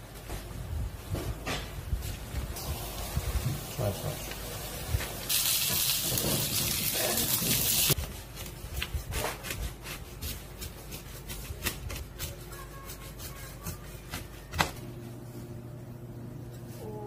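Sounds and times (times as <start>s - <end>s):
chicken sizzling in oil: 2.6s - 8.0s
knife cutting crisp crust: 8.4s - 14.8s.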